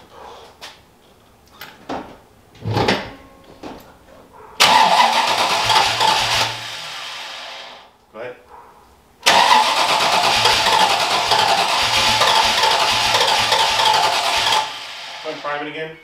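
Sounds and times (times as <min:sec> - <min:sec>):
car engine cranking: 0:04.6 - 0:07.0, 0:09.2 - 0:15.4.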